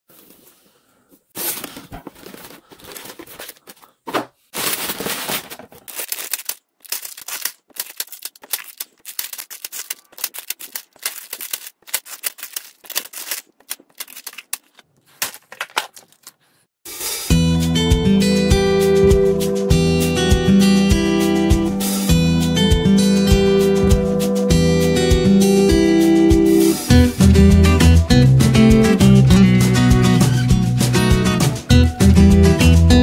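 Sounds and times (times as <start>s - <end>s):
plastic bricks rattling in bags: 1.4s - 3.8s, 4.5s - 16.4s
plastic bags crinkling: 1.4s - 16.6s.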